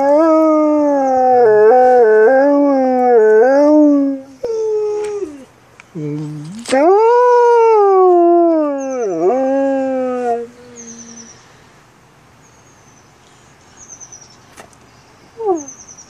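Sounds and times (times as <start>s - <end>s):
wolf howling: 0.0s - 5.4s.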